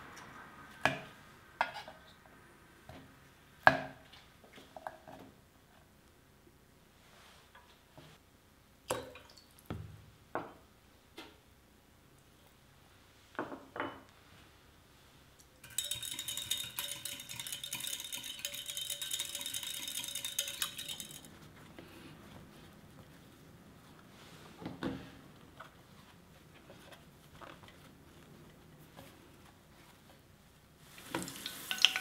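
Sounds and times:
utensil clinking against glass: 0:15.6 - 0:21.3.

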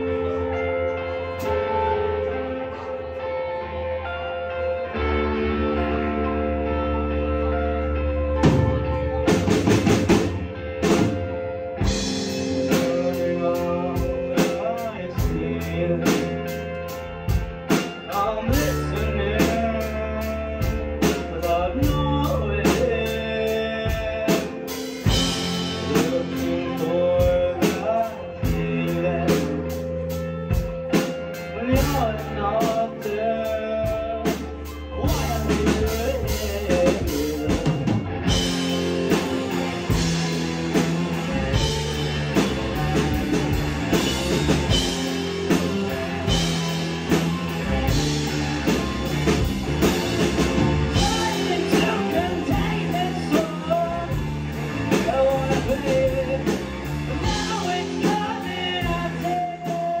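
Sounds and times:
bass guitar: 0:00.0 - 1:00.0
electric guitar: 0:00.0 - 1:00.0
drum kit: 0:08.3 - 1:00.0
person singing: 0:11.8 - 0:40.4, 0:50.2 - 1:00.0.

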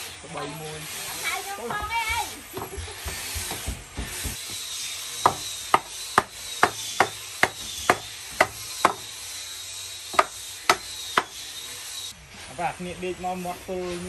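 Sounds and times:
hatchet chopping wood: 0:05.2 - 0:09.1, 0:10.1 - 0:11.4.

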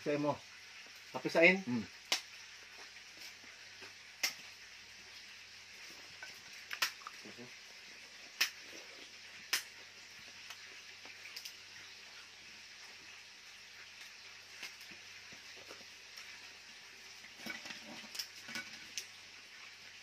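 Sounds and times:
steady hiss: 0:00.0 - 0:20.0
eating clicks and smacks: 0:02.1 - 0:02.3, 0:03.8 - 0:04.4, 0:06.6 - 0:07.2, 0:08.4 - 0:09.8.

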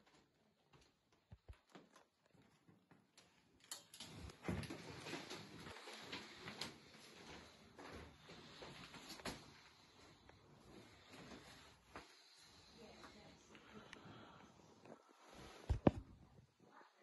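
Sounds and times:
rustling with small knocks: 0:00.0 - 0:13.2
soft footsteps: 0:04.3 - 0:16.8.

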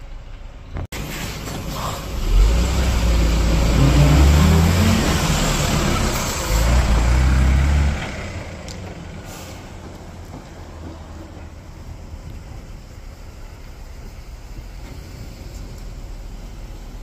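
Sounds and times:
bus engine accelerating: 0:00.0 - 0:17.0.

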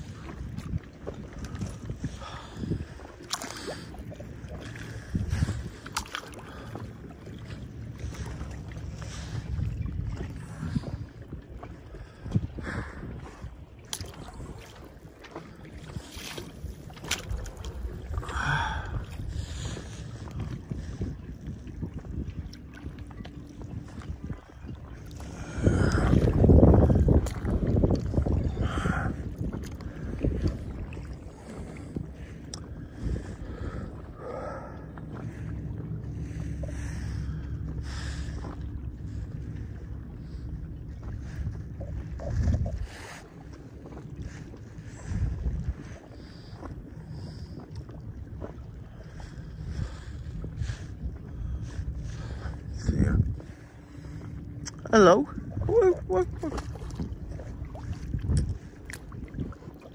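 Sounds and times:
paddle splashing in water: 0:00.0 - 0:32.4, 0:55.6 - 0:59.9
wind rumble on microphone: 0:00.0 - 0:59.9.

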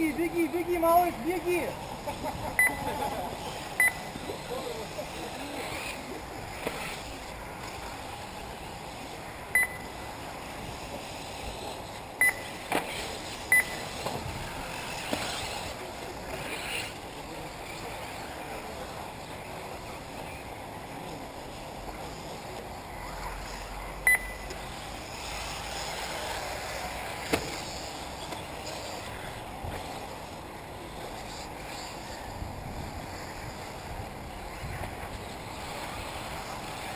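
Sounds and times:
outdoor hiss: 0:00.0 - 0:36.9
high electronic beeps: 0:02.6 - 0:02.8, 0:03.8 - 0:04.2, 0:09.5 - 0:10.0, 0:12.2 - 0:12.5, 0:13.5 - 0:13.8, 0:24.0 - 0:24.5.

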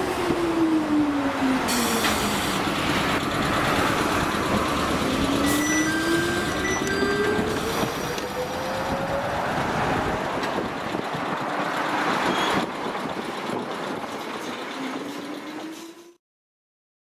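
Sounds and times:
train wheels rumbling: 0:01.6 - 0:16.2.

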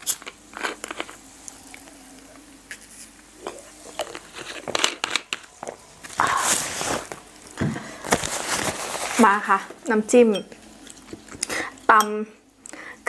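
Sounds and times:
plastic bottle crinkling: 0:03.8 - 0:09.4.

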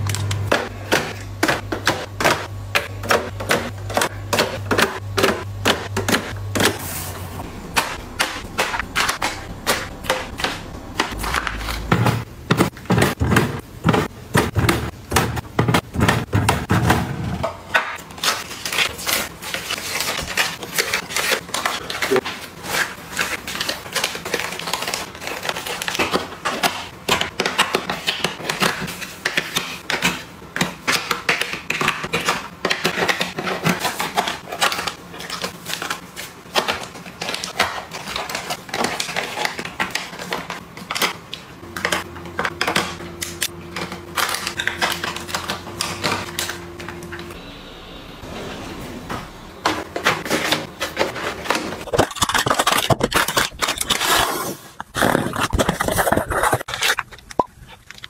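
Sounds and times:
plastic packets crinkling: 0:49.9 - 0:58.0.

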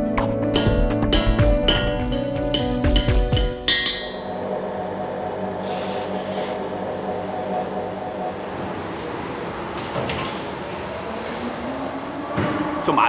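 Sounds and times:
industrial machinery humming: 0:00.0 - 0:13.0
hiss: 0:05.6 - 0:06.6.

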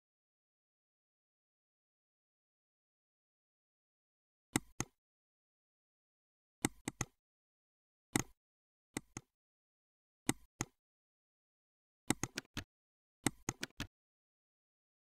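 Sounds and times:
computer mouse clicks: 0:04.6 - 0:05.0, 0:06.6 - 0:07.2, 0:08.2 - 0:08.4, 0:09.0 - 0:09.3, 0:10.3 - 0:10.8, 0:12.1 - 0:13.9.

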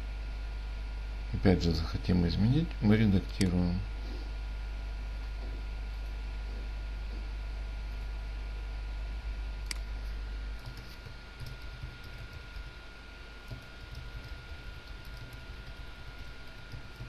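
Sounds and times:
faint high whine: 0:00.0 - 0:17.0
low hum: 0:00.0 - 0:17.0
keyboard typing: 0:10.6 - 0:12.8, 0:13.4 - 0:17.0.

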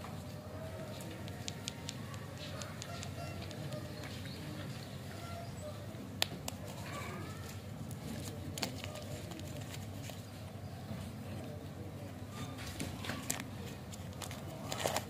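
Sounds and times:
wrapper crinkling: 0:07.3 - 0:10.3, 0:13.1 - 0:15.0.

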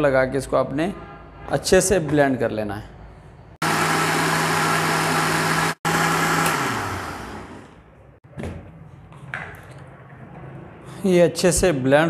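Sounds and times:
blender motor running: 0:03.6 - 0:07.8.

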